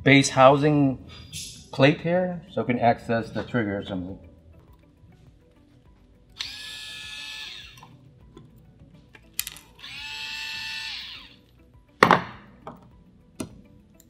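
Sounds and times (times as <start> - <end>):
electric screwdriver whirring: 6.4 - 7.9, 9.8 - 11.4.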